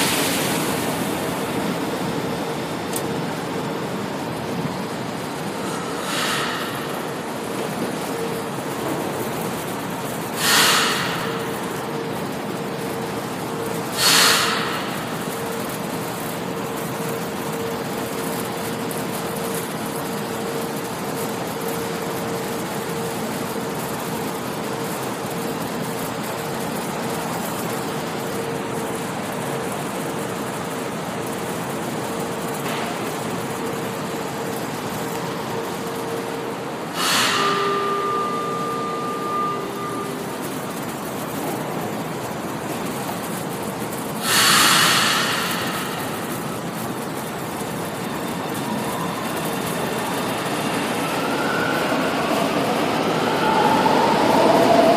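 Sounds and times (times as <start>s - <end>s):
hiss of air: 0.0s - 3.3s, 5.4s - 17.8s, 28.2s - 41.8s, 42.5s - 54.9s
train equipment humming: 0.0s - 54.9s
two-tone door warning signal: 37.0s - 41.1s.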